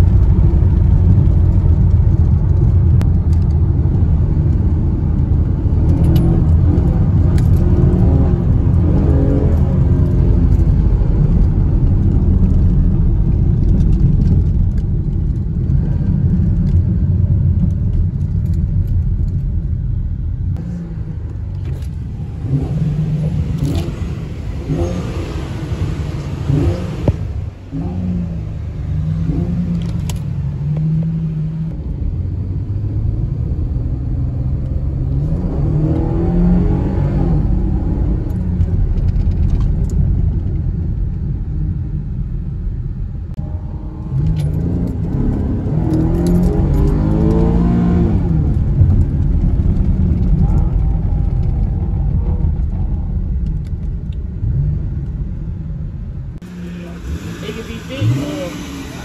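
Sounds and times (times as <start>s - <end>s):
car exhaust droning: 43.3s - 59.0s.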